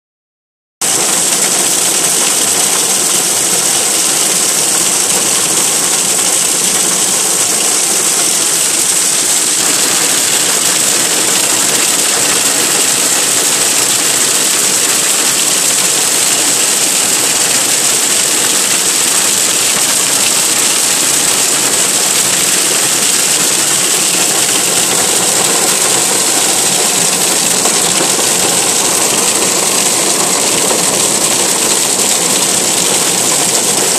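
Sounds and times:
hail pelting car roof: 0.8s - 33.9s.

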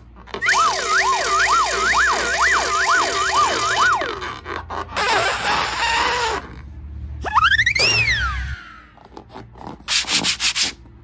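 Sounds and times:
sliding whistle-like tones: 0.3s - 6.4s, 7.2s - 8.8s.

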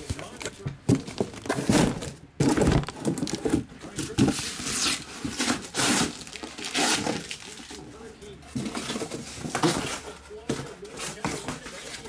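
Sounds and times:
boxes knocking when set down: 0.0s - 4.4s
cardboard and plastic wrap rustling: 0.0s - 12.0s.

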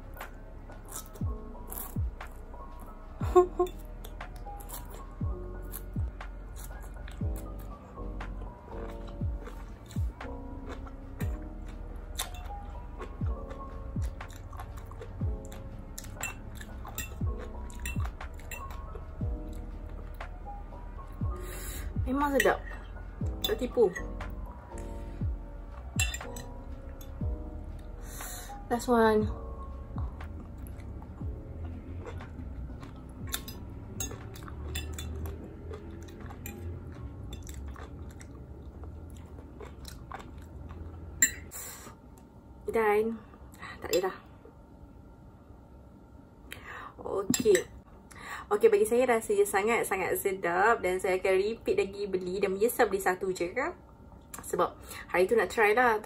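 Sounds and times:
soft background music with beat: 0.0s - 41.5s
close-miked wet chewing: 4.0s - 13.2s, 14.0s - 20.0s, 30.4s - 41.2s
close-up chewing with pops: 8.7s - 12.3s, 35.3s - 41.1s.

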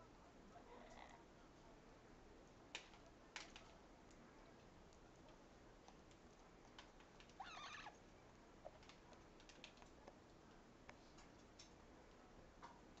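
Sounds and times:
parrot call: 7.4s - 8.0s.

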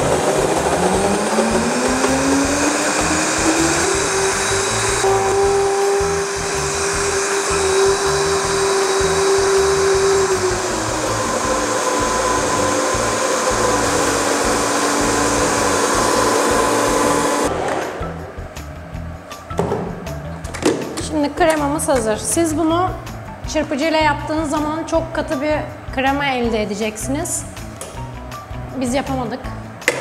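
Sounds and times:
blender motor running: 0.0s - 18.2s.

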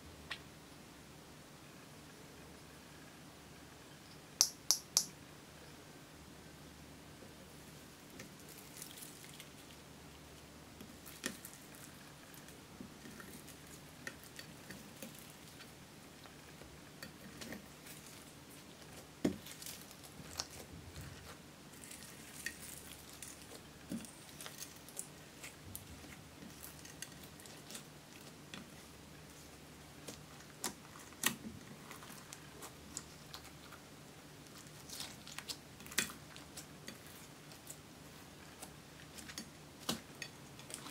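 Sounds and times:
slime squishing: 10.9s - 33.8s, 34.4s - 40.9s.

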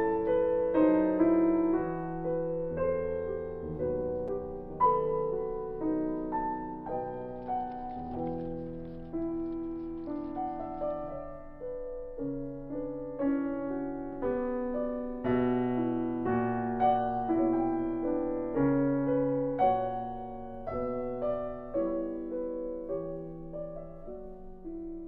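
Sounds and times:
piano music: 0.0s - 25.0s.

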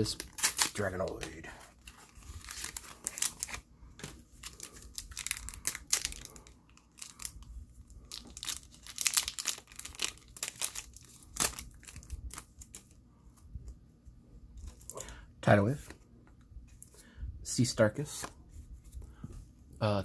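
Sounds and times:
wrapper tearing and crinkling: 0.0s - 3.6s, 4.4s - 7.4s, 8.0s - 12.8s.

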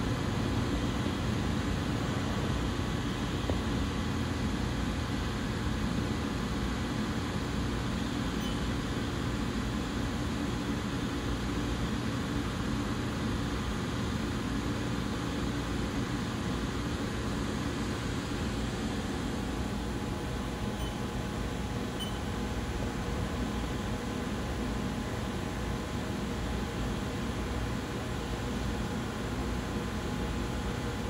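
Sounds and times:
machining center humming: 12.4s - 27.0s.

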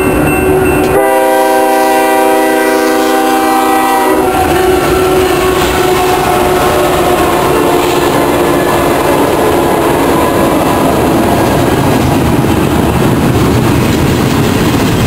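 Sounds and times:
diesel locomotive engines rumbling: 0.0s - 15.0s
train wheels on rails: 0.0s - 15.0s
train air horn: 0.5s - 11.7s.

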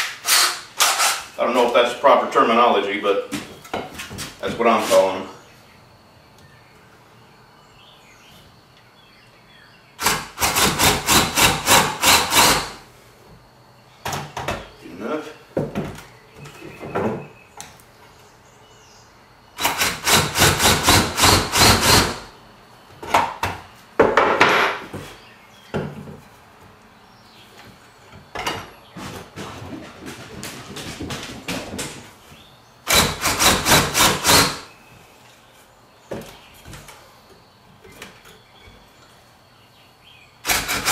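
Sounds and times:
cordless drill drilling into wood: 10.0s - 12.8s, 19.6s - 22.2s, 32.9s - 34.6s
boards knocking on bench: 15.6s - 17.4s, 23.0s - 26.3s.

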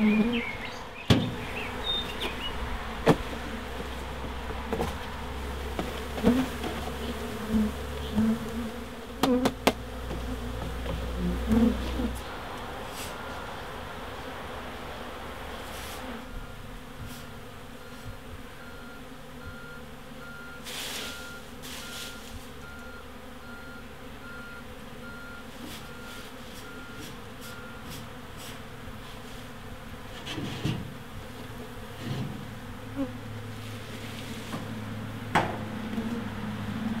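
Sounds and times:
bee swarm buzzing: 0.0s - 37.0s
knocks on bee box: 9.2s - 10.7s, 35.3s - 35.7s.

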